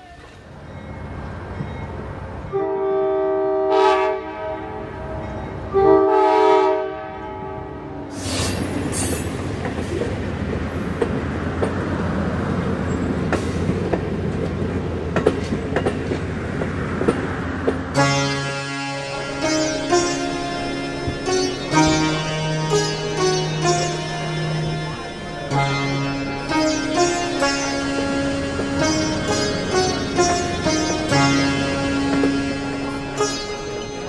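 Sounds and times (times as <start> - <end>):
train coaches rumbling past: 0.0 - 34.0
train horn blasts: 2.5 - 8.0, 18.0 - 34.0
wheels clicking over rail joints: 8.9 - 18.2.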